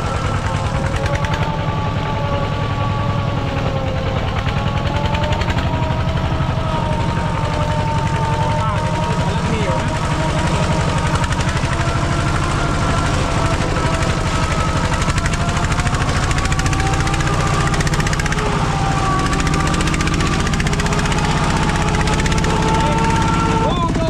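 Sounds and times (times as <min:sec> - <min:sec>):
faint high drifting tones: 0:00.0 - 0:24.0
small engine running: 0:00.0 - 0:24.0.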